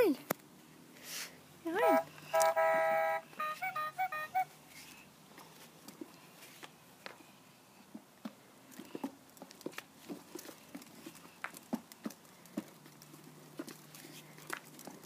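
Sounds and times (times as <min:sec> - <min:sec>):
plastic toy wheels clicking on concrete: 0:02.3 - 0:04.5.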